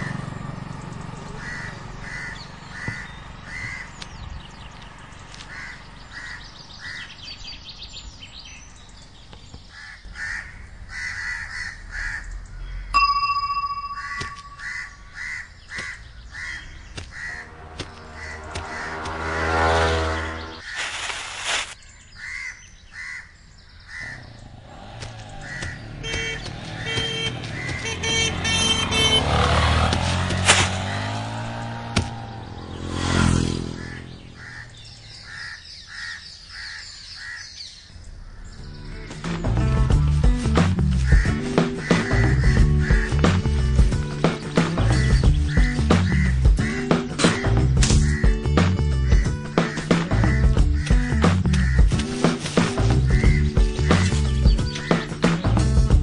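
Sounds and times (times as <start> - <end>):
motorcycle passing: 0.0 - 7.4, 13.8 - 21.6, 23.9 - 36.7
crows cawing: 1.4 - 4.0, 5.3 - 7.2, 9.7 - 12.9, 14.1 - 21.0, 22.1 - 39.2, 41.0 - 43.3, 45.4 - 48.5, 49.1 - 54.0, 54.7 - 55.2.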